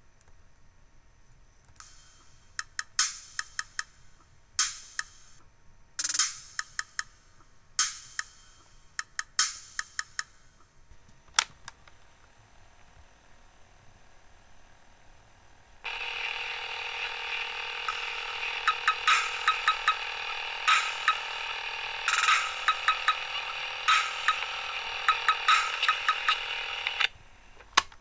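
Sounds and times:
drum machine percussion: 0:01.8 - 0:05.4, 0:06.0 - 0:10.6, 0:17.4 - 0:27.1.

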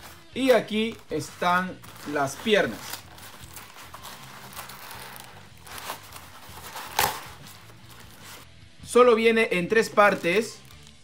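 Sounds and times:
plastic bags rustling: 0:00.0 - 0:08.4, 0:09.9 - 0:11.0
sharp plastic crinkle: 0:00.0 - 0:08.4, 0:10.0 - 0:11.0
faint background music: 0:00.0 - 0:11.0
cardboard box flaps rustling: 0:00.8 - 0:08.4.

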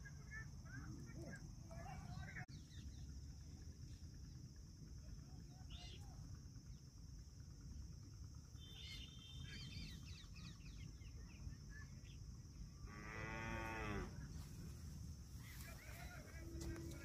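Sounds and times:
cow mooing: 0:12.9 - 0:14.2.

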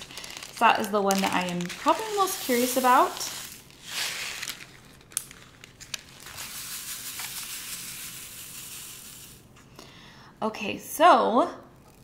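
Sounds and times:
beads rattling in plastic tray: 0:00.0 - 0:09.5
plastic bag crinkling: 0:00.0 - 0:09.6.

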